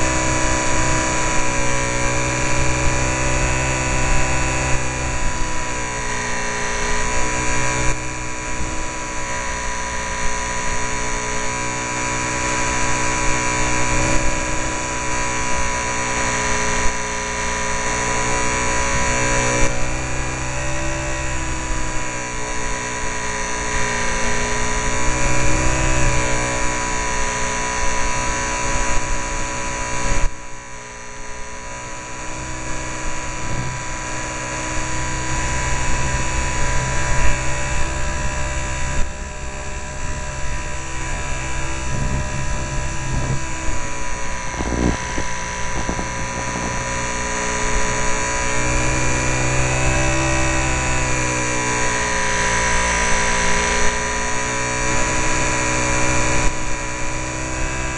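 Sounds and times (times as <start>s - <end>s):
model airplane motor whine: 0.0s - 57.9s.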